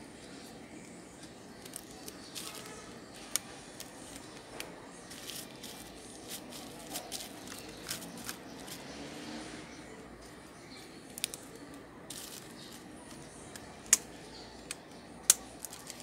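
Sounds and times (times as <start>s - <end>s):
plastic crinkling: 1.6s - 8.8s, 11.1s - 13.2s, 15.3s - 16.0s
rubber bands snapping: 13.5s - 16.0s.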